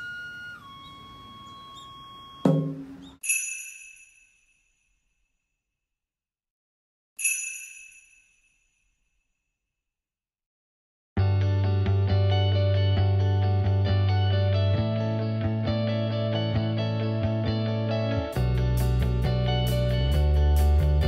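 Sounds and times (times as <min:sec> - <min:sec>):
flute note: 0:00.0 - 0:03.2
sharp drum beat: 0:02.5 - 0:03.0
bright bell chime: 0:02.5 - 0:05.2, 0:07.2 - 0:09.0.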